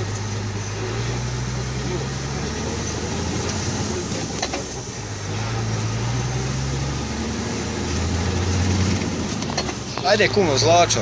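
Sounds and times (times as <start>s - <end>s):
road noise: 0.0s - 11.0s
vehicle engine drone: 0.0s - 11.0s.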